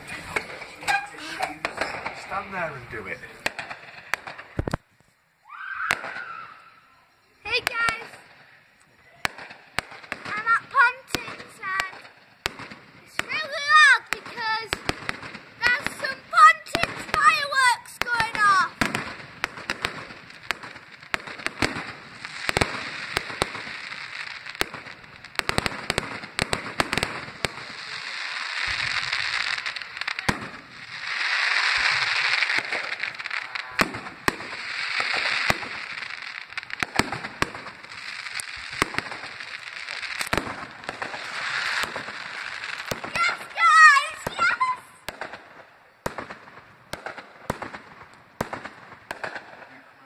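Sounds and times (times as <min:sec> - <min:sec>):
fireworks bangs and cracks: 0:00.0 - 0:50.0
fireworks crackling: 0:00.0 - 0:50.0.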